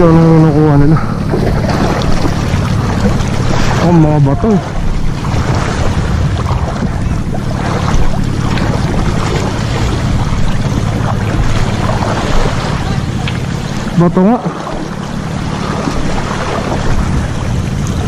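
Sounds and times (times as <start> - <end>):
wind noise on microphone: 0.0 - 14.0, 14.6 - 18.0
boat engine humming: 0.0 - 18.0.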